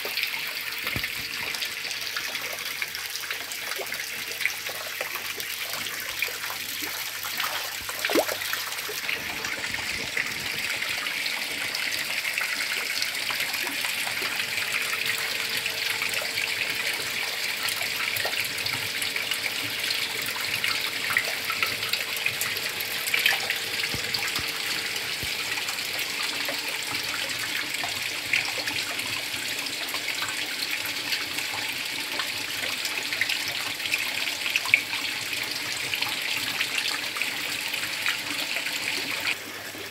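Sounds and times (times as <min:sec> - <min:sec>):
water splashing into a pond: 0:00.0 - 0:30.4.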